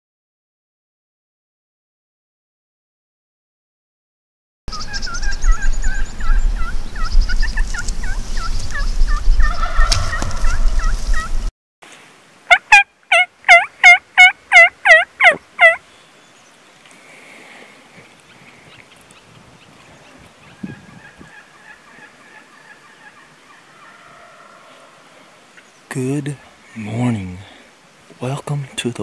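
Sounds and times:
turkey call yelps: 0:04.7 - 0:11.4, 0:12.5 - 0:15.8, 0:20.4 - 0:25.4
heavy wind noise: 0:05.0 - 0:11.5, 0:18.4 - 0:21.4.

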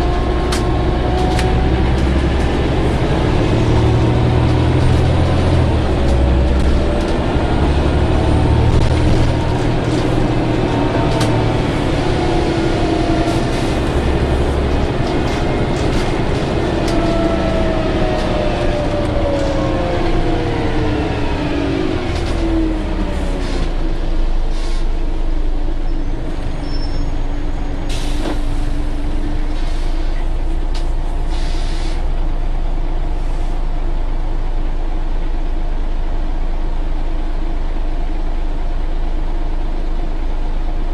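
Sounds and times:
bus diesel engine: 0:00.0 - 0:40.9
air brake hisses: 0:24.5 - 0:25.0, 0:29.6 - 0:30.2, 0:31.3 - 0:32.1.

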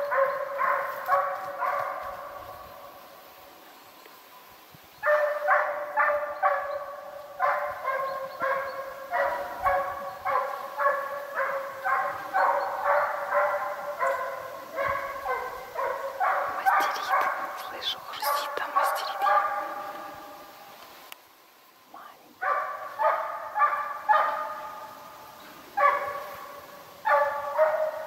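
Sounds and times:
hound baying: 0:05.1 - 0:20.3.

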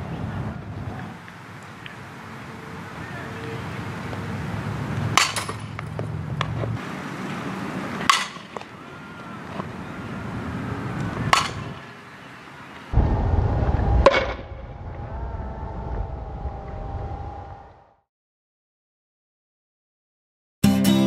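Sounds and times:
bat hitting ball: 0:05.0 - 0:06.7, 0:07.9 - 0:08.8, 0:11.0 - 0:11.9, 0:14.0 - 0:14.5.

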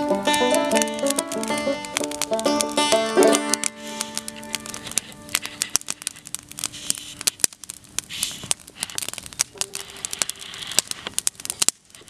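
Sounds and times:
banjo note: 0:00.0 - 0:05.7
wood fire crackling: 0:00.0 - 0:12.0.

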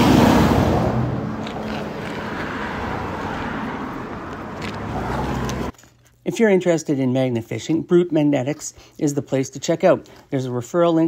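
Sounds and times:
fire engine driving past: 0:00.0 - 0:05.7.

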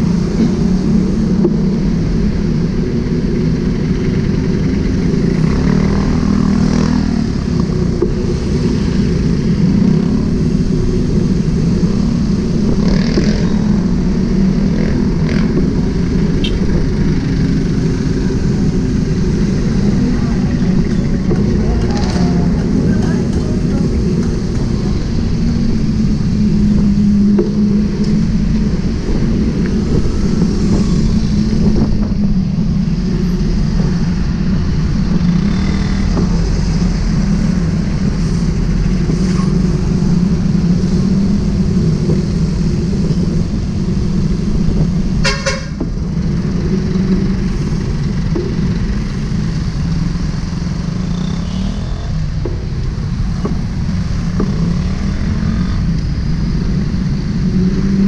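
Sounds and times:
road and traffic noise: 0:00.0 - 0:58.0
vehicle horn toot: 0:45.2 - 0:45.8.

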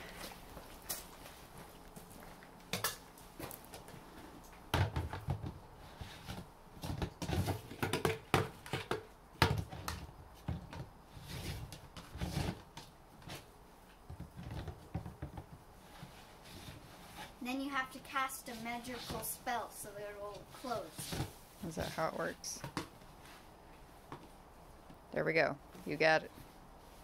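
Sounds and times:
plastic lid knocking and scraping: 0:06.2 - 0:12.6.

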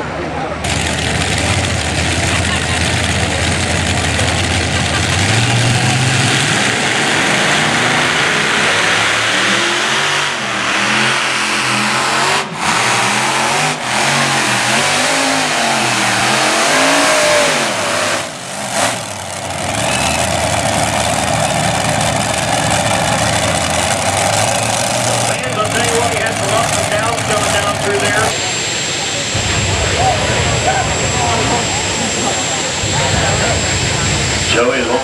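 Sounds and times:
tractor engine at full throttle: 0:00.0 - 0:35.0.

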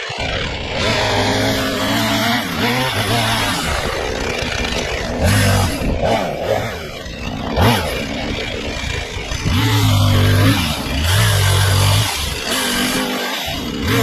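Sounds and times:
chainsaw revving: 0:00.0 - 0:14.0.

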